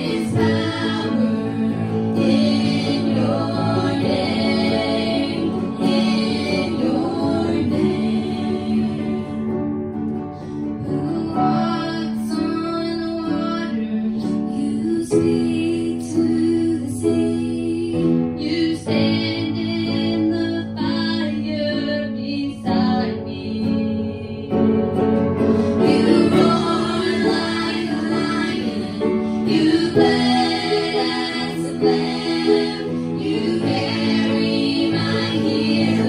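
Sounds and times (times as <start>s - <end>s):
woman and girls singing gospel: 0.0s - 9.5s, 10.8s - 24.7s, 25.8s - 36.0s.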